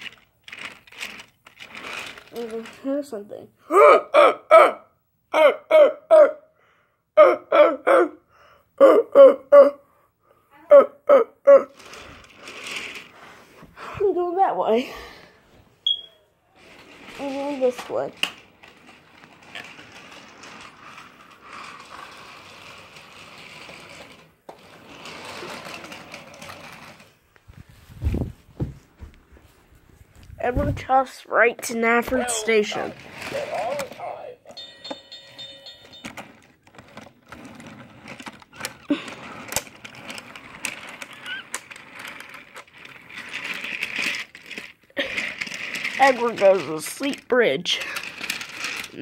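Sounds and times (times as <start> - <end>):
toy train motor whirring: 0.0 - 3.2, 11.6 - 13.5, 16.6 - 27.2, 31.6 - 49.0
wheels clicking and rattling: 0.0 - 3.2, 16.6 - 27.2, 31.6 - 49.0.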